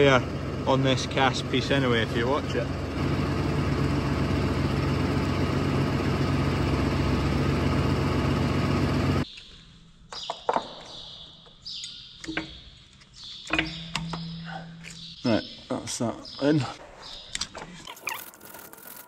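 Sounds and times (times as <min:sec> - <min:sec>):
tractor engine running: 0:00.0 - 0:09.2
small birds chirping: 0:09.2 - 0:19.0.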